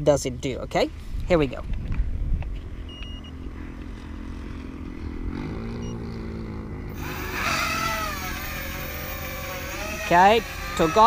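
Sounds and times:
quadcopter propellers whining: 2.9 - 11.0.

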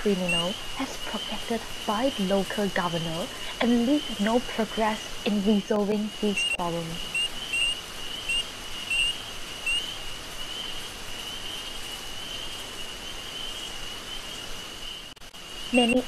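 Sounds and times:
even hiss: 0.0 - 16.0
high insect drone: 0.0 - 16.0.

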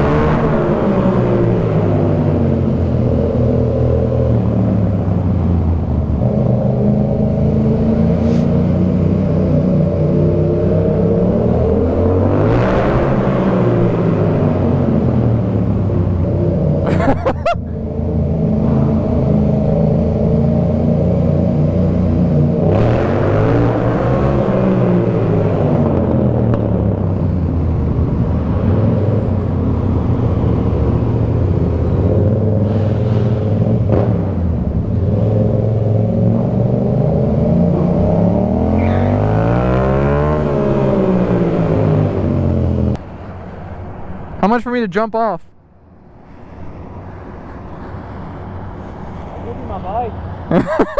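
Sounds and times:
motorcycle engine revving: 17.9 - 43.0.

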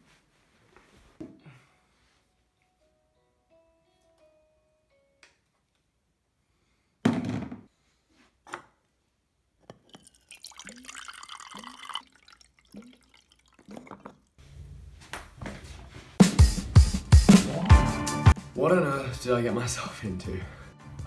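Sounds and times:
water running into a glass: 9.8 - 14.3.

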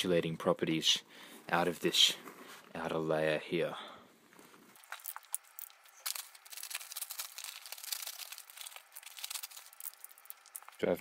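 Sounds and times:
paper sacks crinkling and rustling: 5.9 - 10.8.

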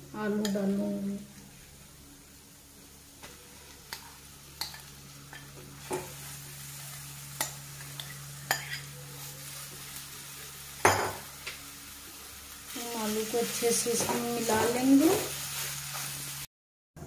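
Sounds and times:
oil sizzling: 0.0 - 16.5
metal spoon clinking on glass bowl: 7.4 - 8.9.

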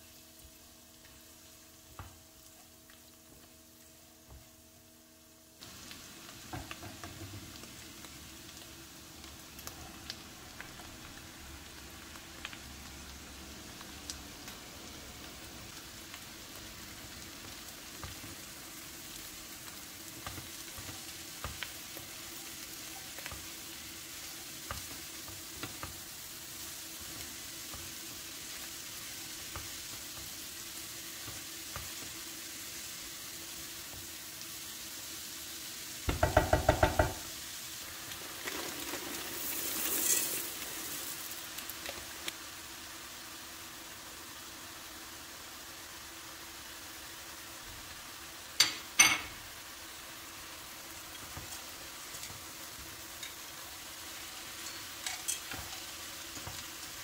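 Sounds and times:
vegetables sizzling in a pot: 0.0 - 57.0.

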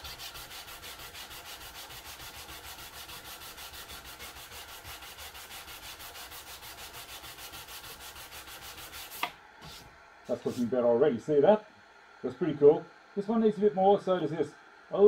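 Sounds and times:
sandpaper rasping on wood: 0.0 - 9.8.

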